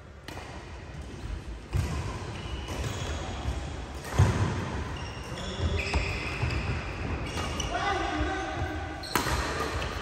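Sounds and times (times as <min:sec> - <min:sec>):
rackets striking shuttlecock: 0:09.0 - 0:10.0.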